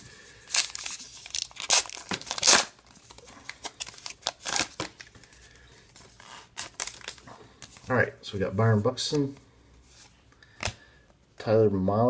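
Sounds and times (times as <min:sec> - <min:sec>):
plastic wrapper ripping and crinkling: 0:00.5 - 0:05.2, 0:06.0 - 0:07.8.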